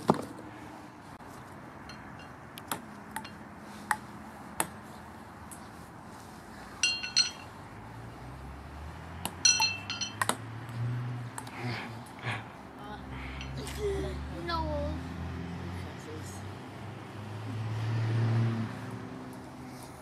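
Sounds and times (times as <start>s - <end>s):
metal horseshoes clanking: 1.9s - 2.4s, 6.8s - 7.5s, 9.4s - 10.3s.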